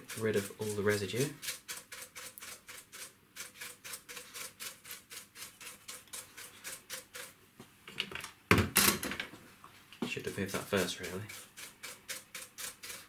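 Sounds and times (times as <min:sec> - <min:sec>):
brush scrubbing plastic: 0:00.0 - 0:07.4, 0:10.3 - 0:13.0.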